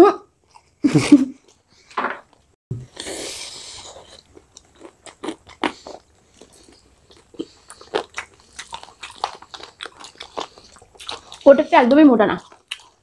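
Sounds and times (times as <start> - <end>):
people biting and chewing: 2.8 - 11.5, 12.4 - 13.0.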